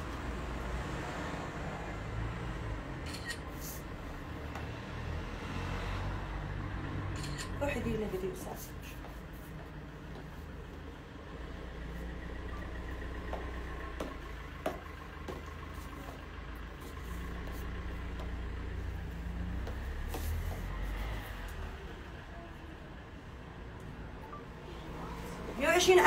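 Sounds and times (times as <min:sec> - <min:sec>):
high heels on tiled floor: 0:07.6 - 0:21.7.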